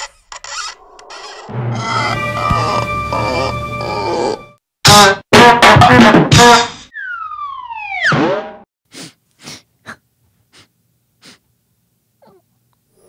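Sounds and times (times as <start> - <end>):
sobbing sniffles: 8.9 - 11.5.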